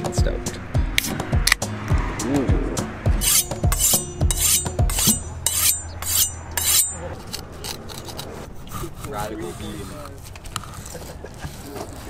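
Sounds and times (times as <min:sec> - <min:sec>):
knife scraping on honing rod: 0:03.2 - 0:12.0.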